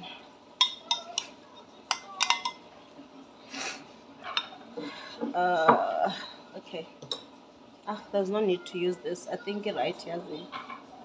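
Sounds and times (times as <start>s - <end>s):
metal utensil clinking on ceramic: 0.6s - 1.3s, 1.9s - 2.6s.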